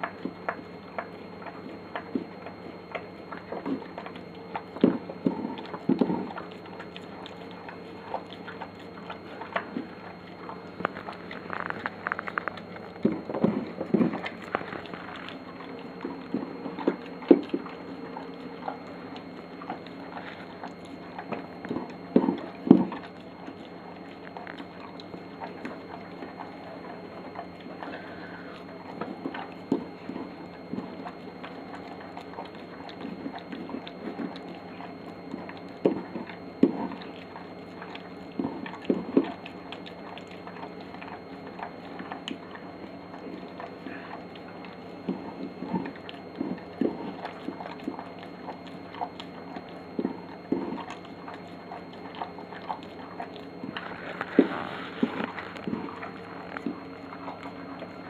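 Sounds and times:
dog chewing and licking: 0.0 - 58.0.

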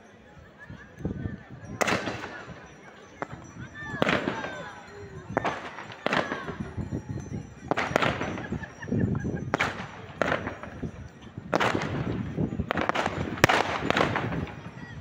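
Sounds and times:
fireworks bangs: 1.8 - 6.9, 7.6 - 8.7, 9.5 - 15.0.

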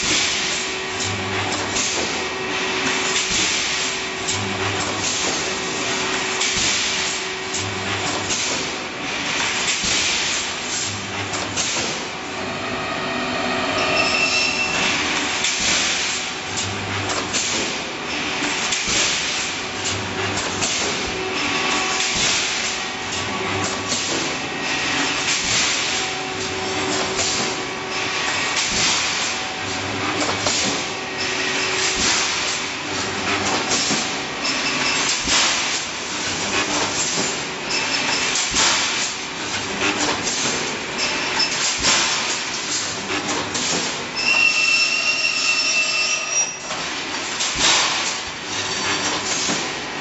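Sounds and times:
pneumatic clanks and hisses: 3.1 - 7.2, 8.1 - 12.2, 13.7 - 22.8, 23.6 - 26.1, 26.9 - 29.4, 30.2 - 39.2, 39.9 - 49.8
high whine: 12.3 - 15.4.

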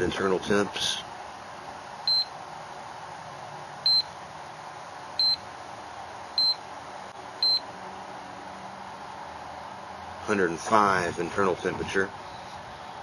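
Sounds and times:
charger beeping: 2.1 - 2.3, 3.8 - 4.1, 5.2 - 5.4, 6.4 - 6.6, 7.4 - 7.7.

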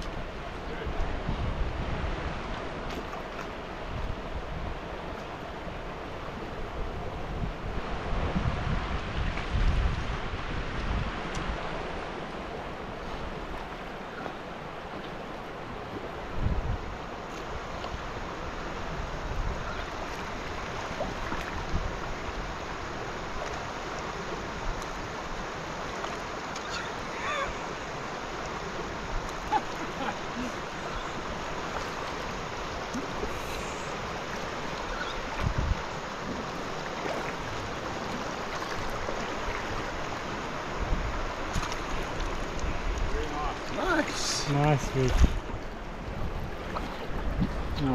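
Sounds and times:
wind buffeting the microphone: 0.0 - 5.1, 5.7 - 12.1, 15.7 - 23.1, 28.7 - 47.9
river water rushing over rocks: 0.0 - 47.9.

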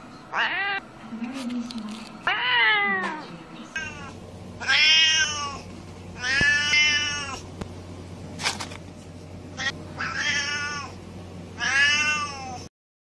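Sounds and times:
cat meowing: 0.3 - 0.8, 2.2 - 3.2, 3.8 - 5.6, 6.2 - 7.4, 9.6 - 11.0, 11.6 - 12.7.

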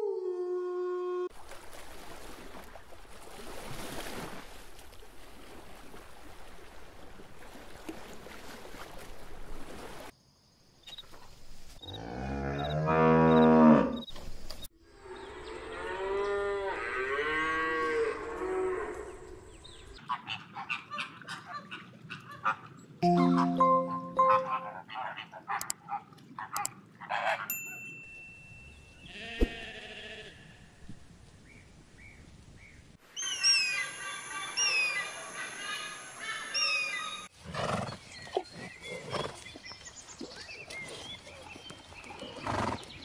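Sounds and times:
cow mooing: 12.0 - 14.0, 15.1 - 19.1.

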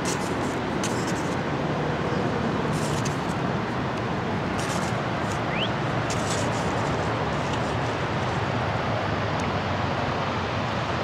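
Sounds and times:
outdoor background noise: 0.0 - 11.0.

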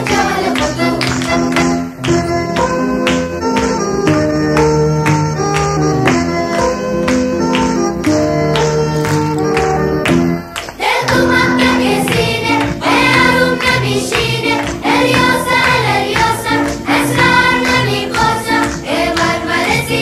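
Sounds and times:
group chanting song over a beat: 0.0 - 1.5, 10.7 - 20.0.

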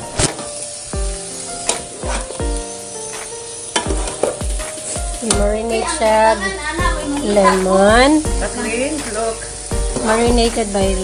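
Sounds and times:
meat sizzling in a frying pan: 0.0 - 11.0
background music with steady beat: 0.1 - 11.0.

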